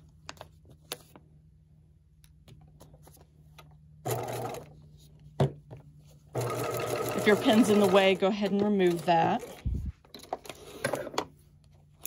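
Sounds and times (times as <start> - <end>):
paper handling: 0.0 - 1.3
sewing machine stitching: 6.4 - 9.6.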